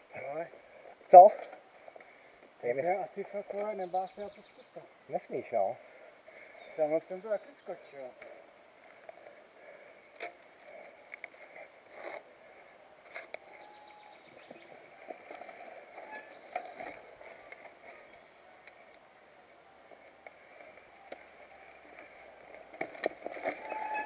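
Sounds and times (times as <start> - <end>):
faint steady rush: 0.0 - 23.7
bike clicking and rattling over rocks: 10.2 - 12.4, 14.4 - 18.3, 20.2 - 24.0.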